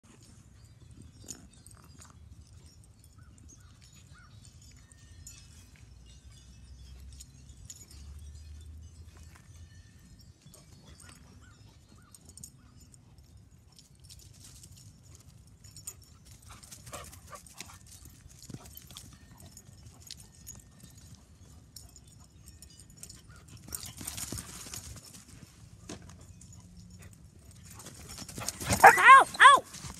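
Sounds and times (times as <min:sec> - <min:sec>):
dog vocal sounds: 0:28.7 - 0:29.7.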